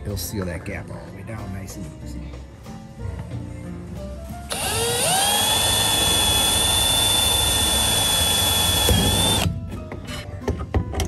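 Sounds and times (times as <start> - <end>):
cordless drill whining: 4.5 - 9.5.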